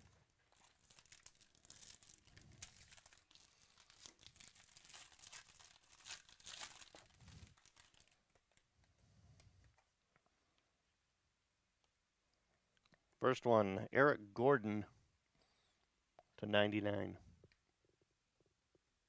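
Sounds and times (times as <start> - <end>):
foil wrapper tearing and crinkling: 0.0 - 8.6.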